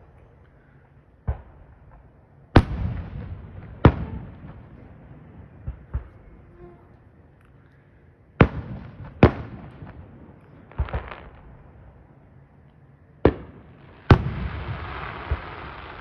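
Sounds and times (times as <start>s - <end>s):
firework bangs: 1.2s - 6.8s, 8.4s - 11.8s, 13.2s - 16.0s.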